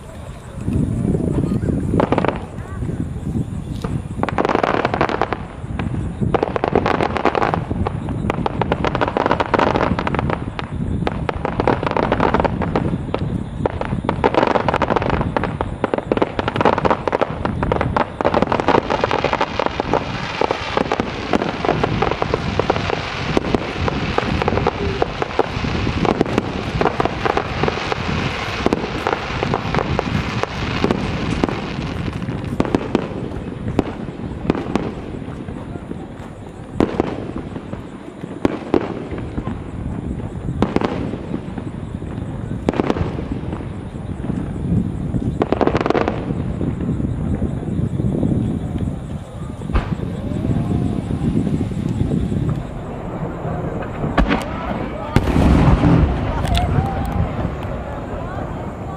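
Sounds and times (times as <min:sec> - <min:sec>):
firework crackle: 0:00.0 - 0:58.9
firework shells bursting: 0:03.7 - 0:35.6, 0:48.3 - 0:58.2.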